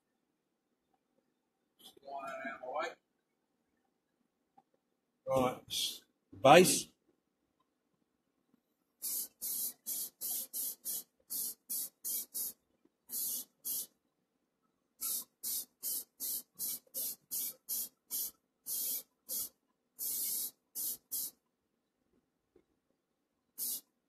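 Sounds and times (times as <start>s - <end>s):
spray paint hissing: 9.0s - 14.0s, 15.0s - 21.4s, 23.6s - 23.9s.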